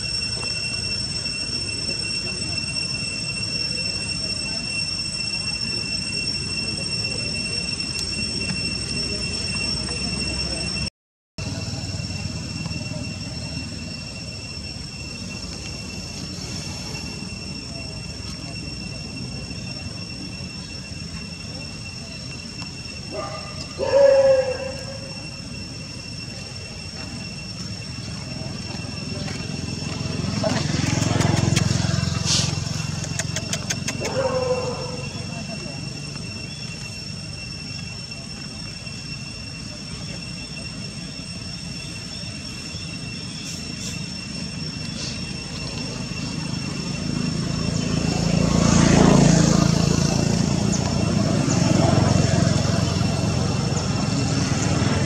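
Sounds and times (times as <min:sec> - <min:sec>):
high-pitched tones: 0:00.0 - 0:55.0
outdoor rumble and hiss: 0:11.4 - 0:55.0
faint short chirps: 0:42.8 - 0:45.9.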